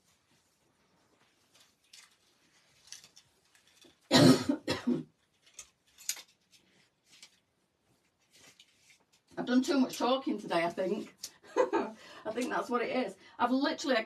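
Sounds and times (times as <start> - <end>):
faint rustling: 0.0 - 4.1, 5.2 - 11.3
woman coughing harshly: 4.1 - 5.1.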